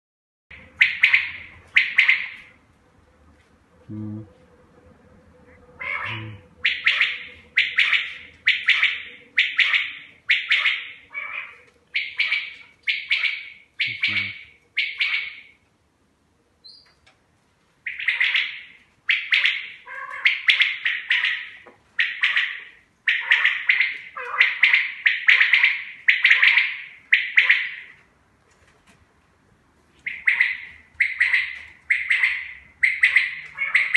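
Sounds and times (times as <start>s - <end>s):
quail calling: 0.5s - 2.6s, 5.5s - 15.6s, 17.8s - 28.0s, 30.0s - 33.9s.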